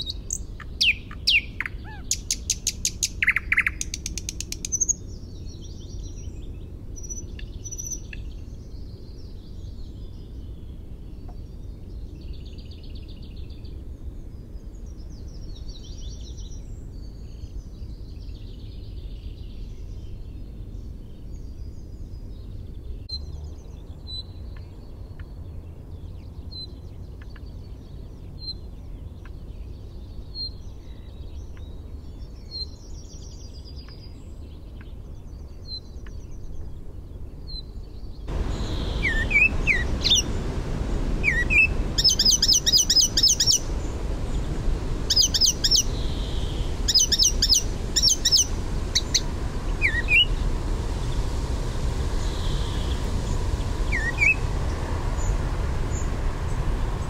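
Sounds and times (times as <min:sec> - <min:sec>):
thin high bird calls: 0:00.0 - 0:05.1, 0:38.3 - 0:51.3, 0:52.1 - 0:57.0
warbler singing: 0:00.0 - 0:57.0.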